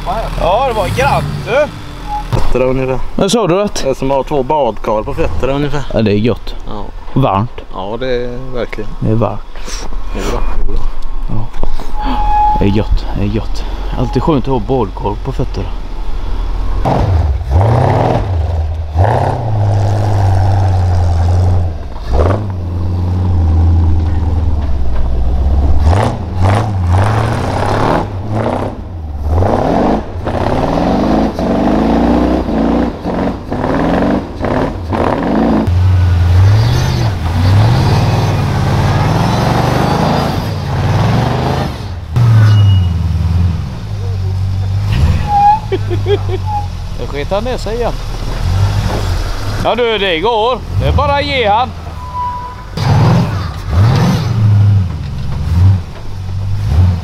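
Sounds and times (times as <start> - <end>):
engine revving under load: 0.0 - 2.9, 15.6 - 57.0.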